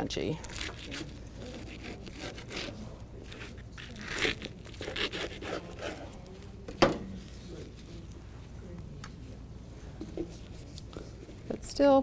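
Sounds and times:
knife crunching through tortilla: 0:00.4 - 0:06.3.

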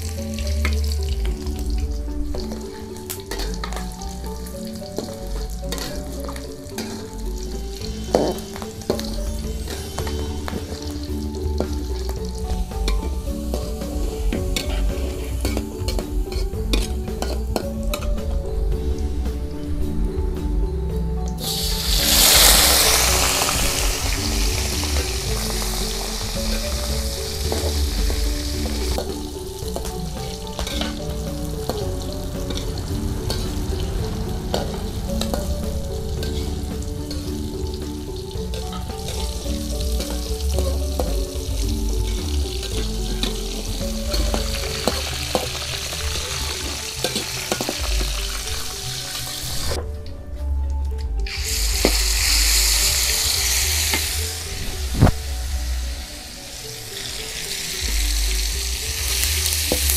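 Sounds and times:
spice paste sizzling in oil: 0:00.0 - 0:18.1, 0:21.4 - 0:49.8, 0:51.2 - 0:59.9
food sizzling in wok: 0:00.0 - 0:49.8, 0:51.2 - 0:59.9
metal spatula scraping wok: 0:01.8 - 0:18.1, 0:21.4 - 0:49.8.

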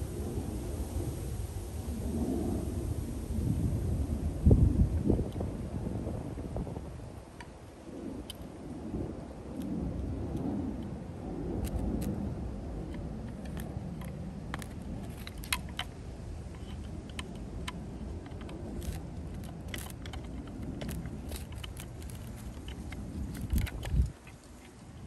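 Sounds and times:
low steady rumble: 0:00.0 - 0:25.0
metal parts clicking and tapping: 0:16.6 - 0:24.1.

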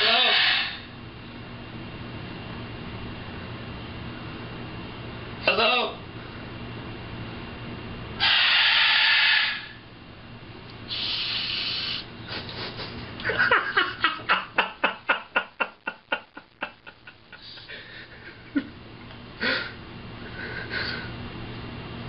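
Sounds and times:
parrot hissing: 0:00.0 - 0:00.8, 0:08.2 - 0:09.8, 0:10.9 - 0:12.1
parrot laugh-like pulses: 0:00.0 - 0:00.8.

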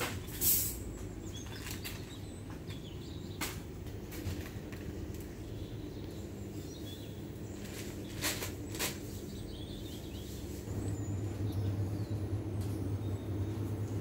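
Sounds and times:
low hum: 0:10.6 - 0:14.0.

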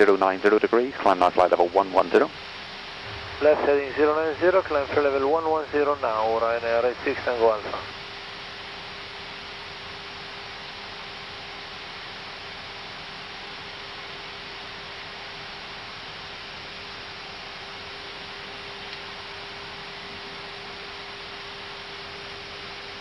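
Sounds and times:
steady hiss: 0:00.0 - 0:08.6
constant low hum: 0:00.0 - 0:23.0.

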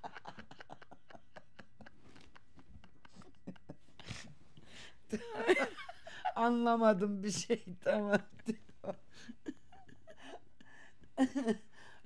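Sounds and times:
soft rustling of hands: 0:01.6 - 0:04.7.

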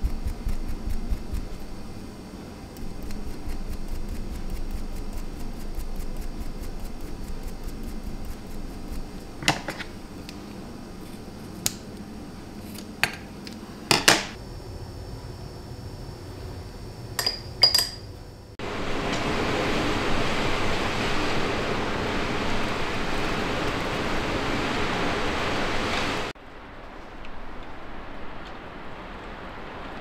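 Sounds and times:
comb raking through yarn: 0:00.0 - 0:02.1, 0:02.8 - 0:11.7.

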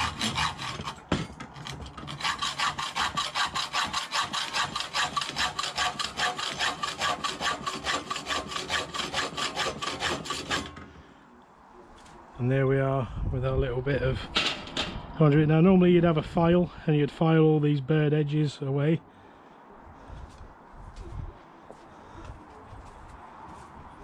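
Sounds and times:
hacksaw cutting metal: 0:00.0 - 0:10.9.

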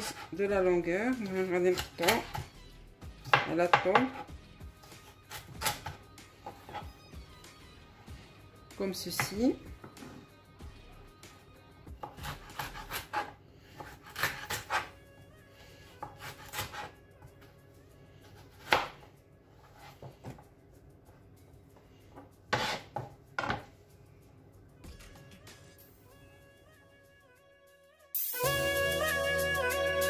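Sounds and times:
soft background music: 0:00.0 - 0:30.0
knife hitting cutting board: 0:03.2 - 0:04.2.

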